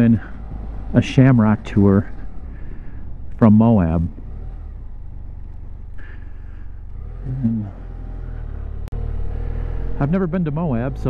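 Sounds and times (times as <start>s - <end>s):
motorcycle engine droning: 0.0s - 11.0s
short vocal sound: 7.2s - 7.8s.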